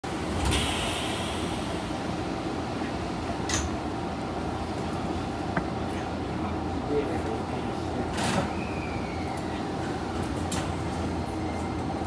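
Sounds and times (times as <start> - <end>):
train interior hum: 0.0 - 12.0
hiss: 0.4 - 2.0.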